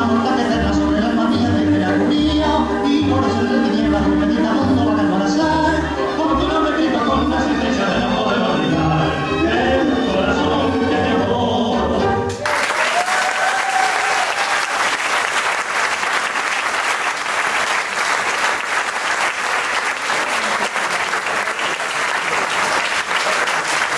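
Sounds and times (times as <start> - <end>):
sung tango music: 0.0 - 12.5
crowd applauding: 12.4 - 23.9.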